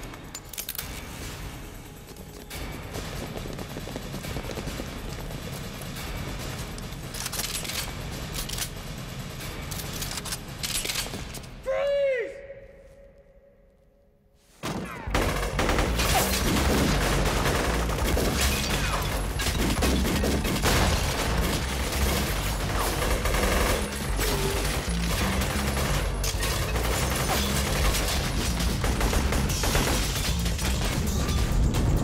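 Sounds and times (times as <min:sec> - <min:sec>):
pistol and automatic gunfire: 0:14.7 - 0:31.5.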